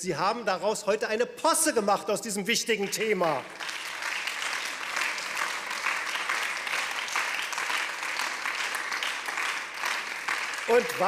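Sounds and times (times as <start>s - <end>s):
crowd applauding: 2.8s - 11.0s.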